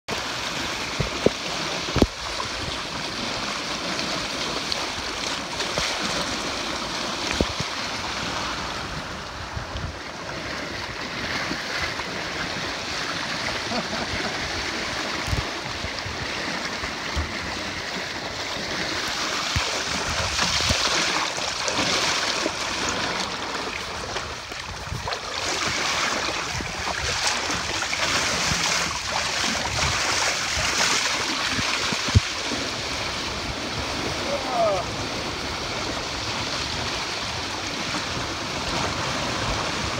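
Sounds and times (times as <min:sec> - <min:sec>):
water rushing and splashing along hulls: 0:00.0 - 0:39.9
wind buffeting microphone: 0:14.0 - 0:39.9.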